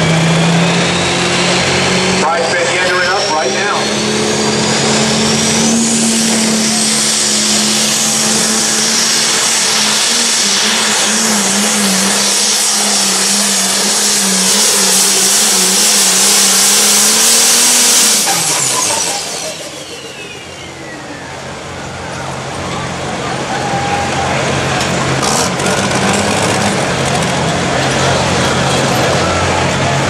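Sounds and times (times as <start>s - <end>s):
diesel engine at high revs: 0.0s - 30.0s
turbo whistle: 2.8s - 21.4s.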